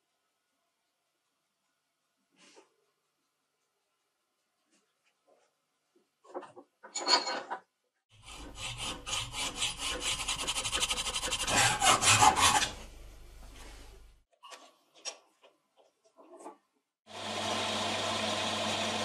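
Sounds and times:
hacksaw cutting steel rod: 8.2s - 12.8s.

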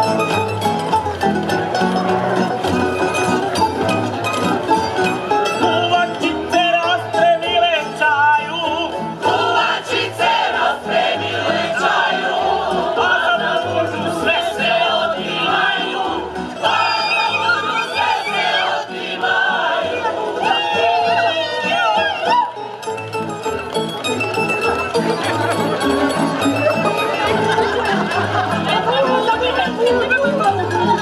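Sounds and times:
plucked string band: 0.0s - 21.4s, 22.3s - 31.0s
group singing folk song: 5.6s - 22.3s.

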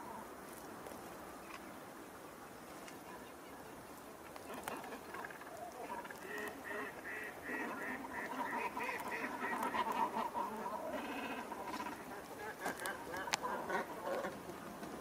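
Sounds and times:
ducks and swans calling: 4.3s - 15.0s.

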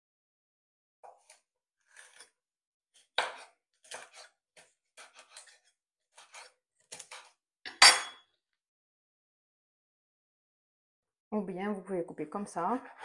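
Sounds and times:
knife chopping on wooden board: 3.0s - 7.4s.

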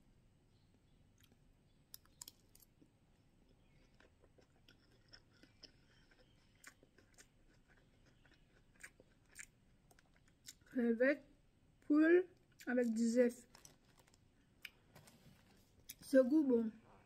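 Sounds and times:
chewing and mouth sounds: 3.4s - 10.7s.

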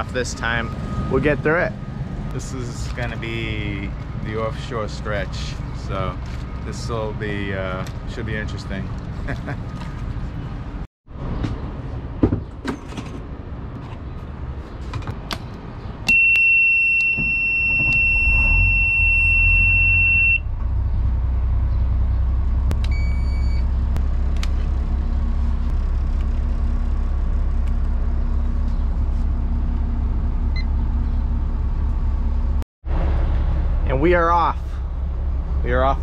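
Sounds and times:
short electronic beeps: 16.1s - 20.4s
diesel engine starting and idling: 17.4s - 36.0s.

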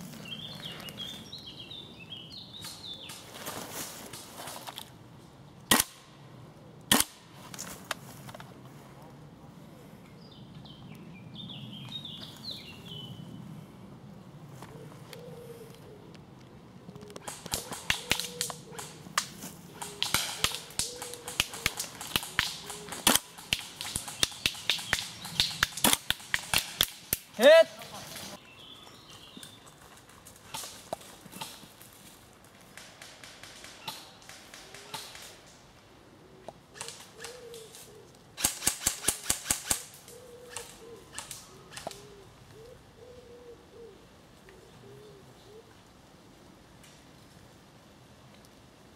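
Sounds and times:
airsoft rifle firing sharp shots: 19.8s - 27.3s, 38.4s - 39.9s.

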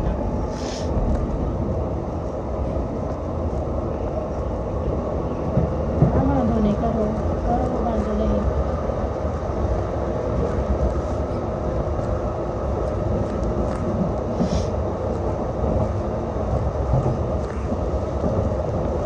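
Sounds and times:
light rail car rumbling: 0.0s - 19.0s.

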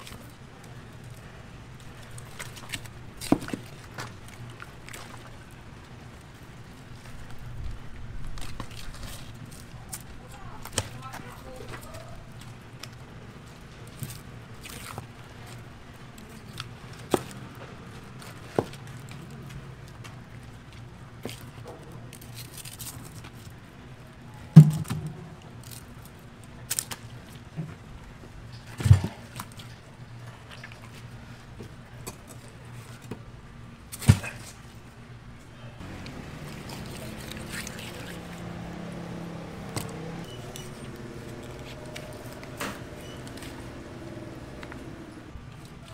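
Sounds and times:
heavy wet thuds on wood: 24.6s - 25.2s
sharp knocks: 24.6s - 25.2s.

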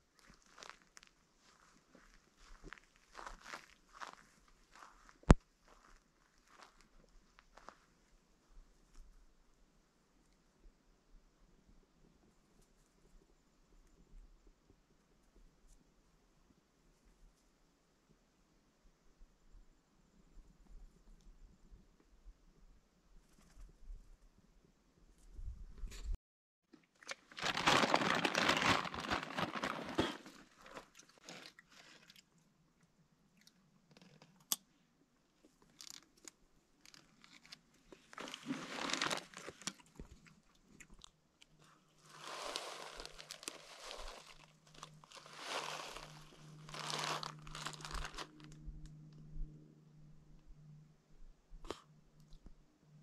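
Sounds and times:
crunching and rustling: 0.0s - 7.9s, 27.0s - 32.2s, 35.5s - 48.6s
low steady hum: 37.6s - 53.0s.

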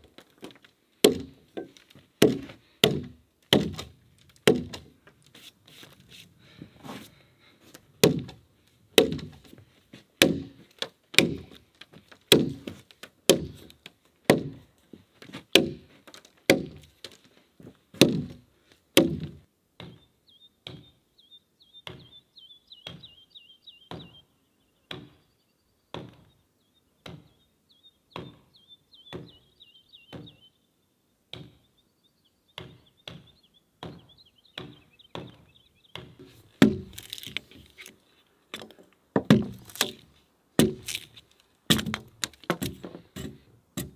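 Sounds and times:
axe chopping into log: 1.0s - 4.9s, 8.0s - 8.4s, 9.0s - 9.5s, 10.2s - 10.6s, 11.2s - 11.6s, 12.3s - 14.6s, 15.5s - 15.9s, 16.5s - 17.2s, 18.0s - 18.4s, 19.0s - 19.9s, 36.0s - 37.7s, 39.2s - 43.9s.

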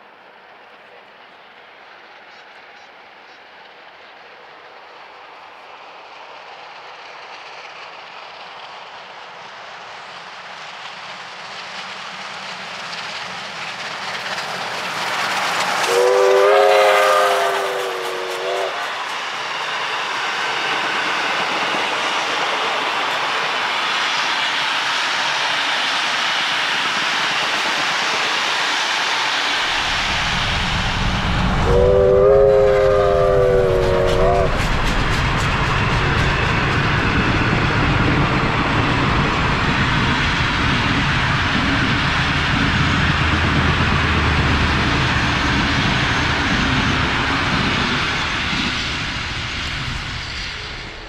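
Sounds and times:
steam train approaching: 0.0s - 51.0s
wheels on rails: 5.6s - 51.0s
steam whistle: 15.8s - 19.0s, 31.6s - 34.8s.

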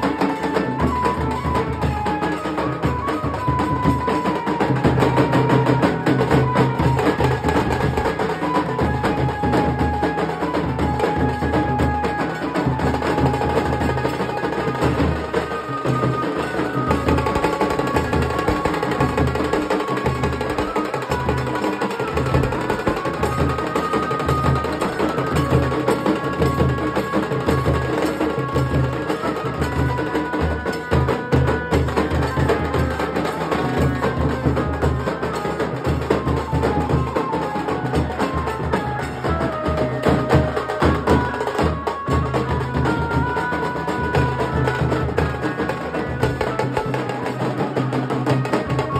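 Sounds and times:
fast snare drum strokes: 1.8s - 38.4s.

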